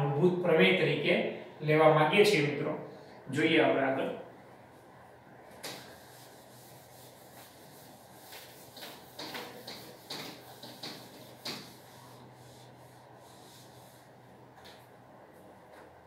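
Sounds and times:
eraser rubbing whiteboard: 5.6 - 14.8.

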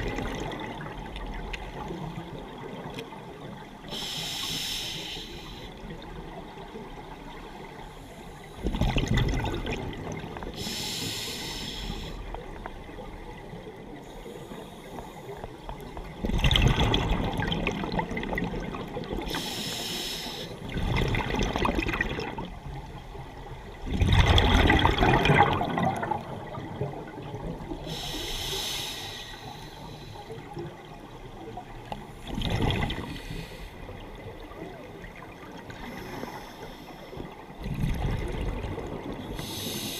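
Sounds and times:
gurgling exhaled bubbles: 0.0 - 2.8, 8.6 - 10.6, 16.1 - 19.3, 20.6 - 22.6, 23.8 - 27.9, 32.2 - 36.1, 37.6 - 39.3
regulator hissing inhale: 3.8 - 5.8, 10.6 - 12.3, 14.0 - 15.4, 19.3 - 20.6, 27.8 - 30.4, 33.0 - 33.9, 35.8 - 37.3, 39.3 - 39.9.

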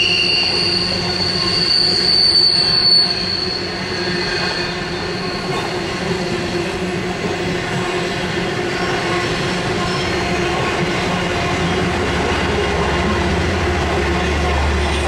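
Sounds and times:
steel train wheels on rail: 0.0 - 15.0.

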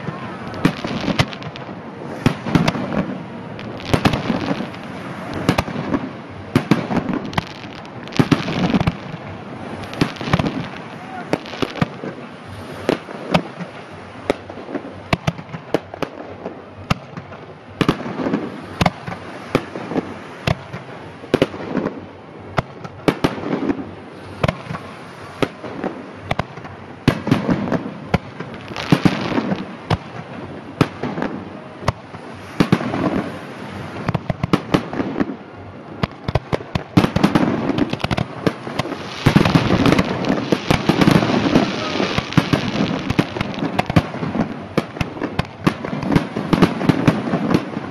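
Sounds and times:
firework bangs: 0.0 - 47.9
firework crackling: 0.0 - 47.9.

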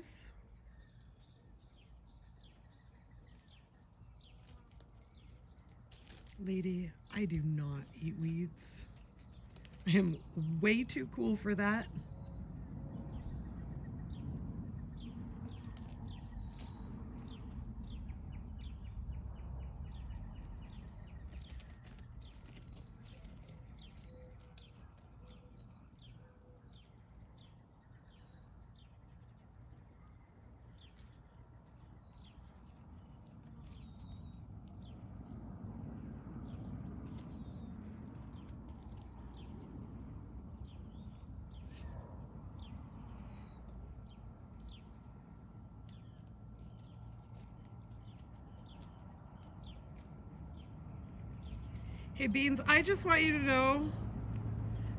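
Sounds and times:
bird chirps: 0.0 - 35.4
low steady rumble: 0.0 - 54.9
goats stepping on gravel: 0.8 - 11.4, 15.0 - 27.8, 28.4 - 52.0.

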